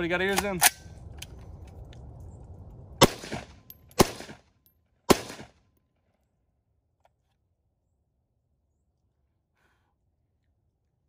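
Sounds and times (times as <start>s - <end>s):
rifle shots with echo: 3.0s - 4.4s, 5.1s - 5.6s.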